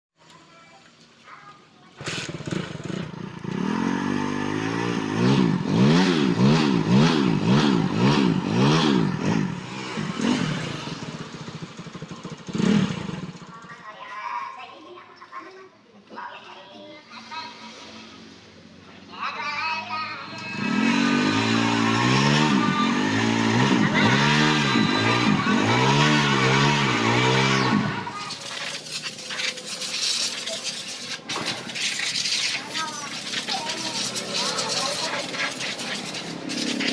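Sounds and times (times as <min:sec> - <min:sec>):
motorcycle engine revving: 0:02.0 - 0:13.9, 0:20.1 - 0:36.9.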